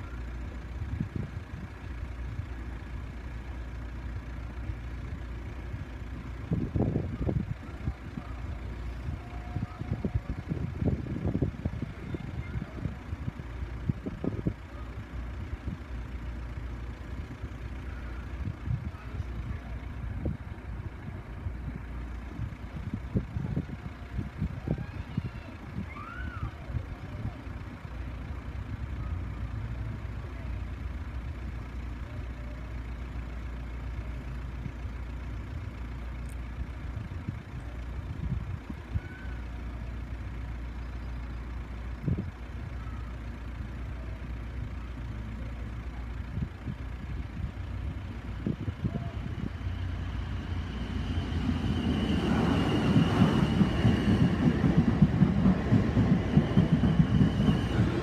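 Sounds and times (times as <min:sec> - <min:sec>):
road traffic rumble: 0:00.0 - 0:58.0
electric train passing: 0:47.6 - 0:58.0
high whine: 0:48.4 - 0:58.0.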